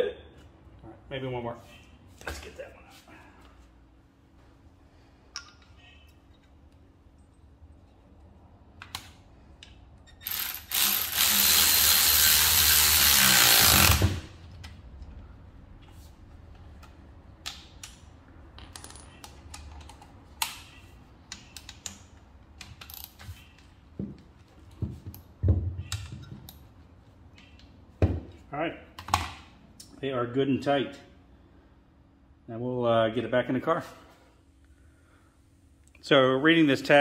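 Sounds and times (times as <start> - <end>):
clicks of sockets and metal parts: 5.3 - 6.8, 18.6 - 23.7
cordless power tool driving bolts: 10.2 - 14.4.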